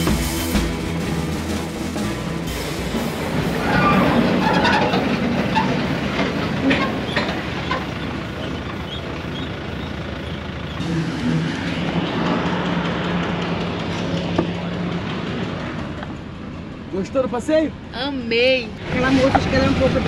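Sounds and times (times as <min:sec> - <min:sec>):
ferry engine humming: 0:00.0 - 0:20.0
metallic knocks and clatter: 0:04.1 - 0:08.8.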